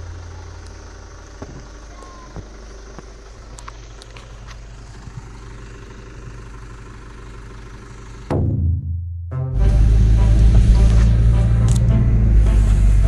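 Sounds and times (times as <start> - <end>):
vehicle engine idling: 0.0 - 8.6, 9.6 - 13.0
music: 8.9 - 13.0.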